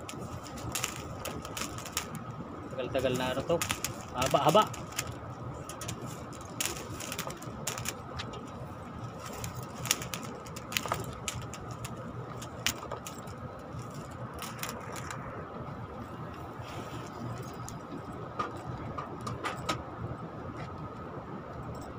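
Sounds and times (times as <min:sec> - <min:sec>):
wire and conduit clicking: 0:00.0 - 0:15.6
steady low hum: 0:00.0 - 0:21.9.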